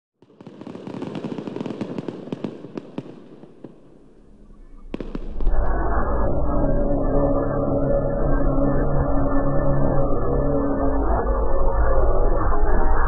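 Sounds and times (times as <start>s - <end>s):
dense crackling pops: 0.2s - 4.2s, 4.8s - 5.5s.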